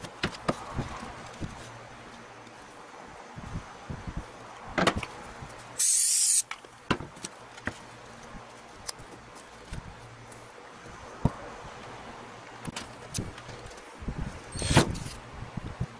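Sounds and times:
loud high hissing burst: 5.8s - 6.4s.

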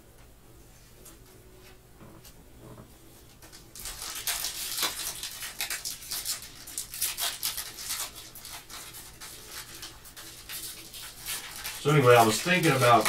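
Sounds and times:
foil wrapper crackling: 3.4s - 13.0s.

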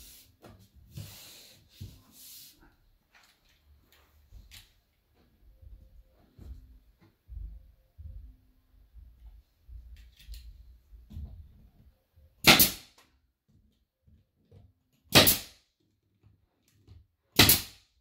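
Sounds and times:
handling and shuffling noises: 0.2s - 8.4s
nail gun firing: 12.4s - 13.0s, 15.1s - 15.6s, 17.4s - 17.8s.

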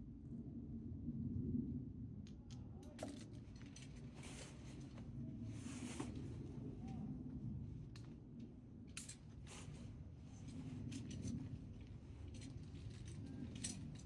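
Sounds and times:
low steady rumble: 0.0s - 14.0s
climbing gear clicks and scrapes: 8.9s - 14.0s.

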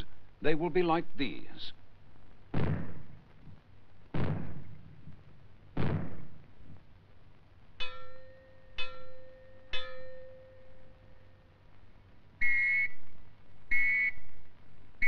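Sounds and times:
explosive bangs: 2.5s - 6.9s
metal gong ringing: 7.8s - 11.1s.

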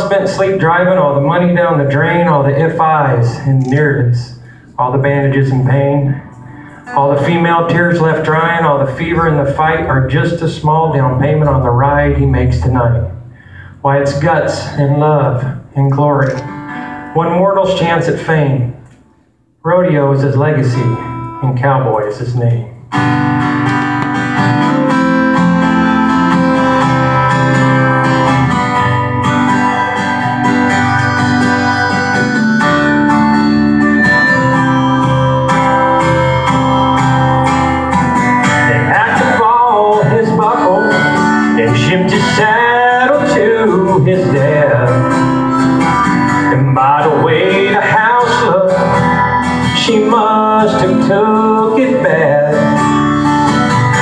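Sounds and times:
acoustic guitar country intro: 0.0s - 54.0s
man singing: 6.9s - 13.2s, 38.6s - 45.3s, 46.4s - 53.0s.

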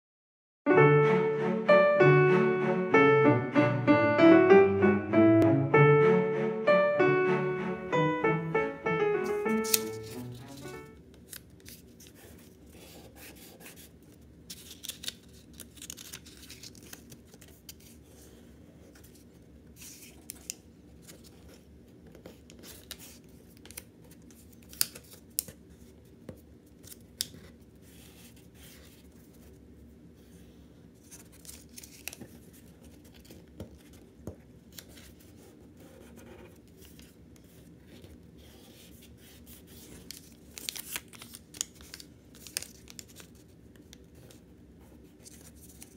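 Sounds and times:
paper money rustling and snapping: 9.5s - 12.2s, 14.5s - 18.0s, 31.0s - 32.4s, 39.8s - 43.9s.

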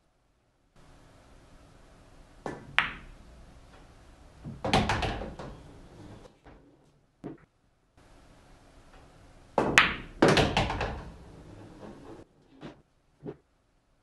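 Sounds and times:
billiard balls clicking: 2.3s - 6.3s, 8.9s - 13.4s
cue tip tapping cue ball: 2.4s - 5.6s, 9.6s - 11.1s.

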